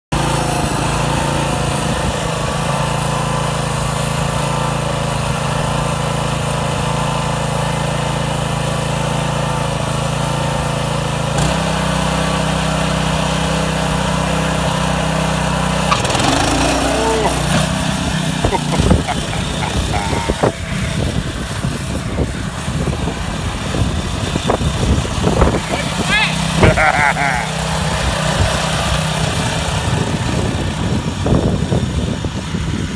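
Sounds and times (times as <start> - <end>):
tractor engine running: 12.9 - 31.2.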